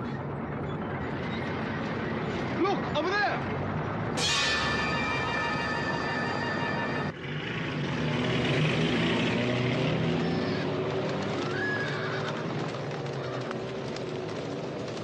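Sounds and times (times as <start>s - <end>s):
held musical chord: 4.2s - 7.2s
horses galloping over dry ground: 9.8s - 15.0s
horse whinnying: 11.6s - 12.4s.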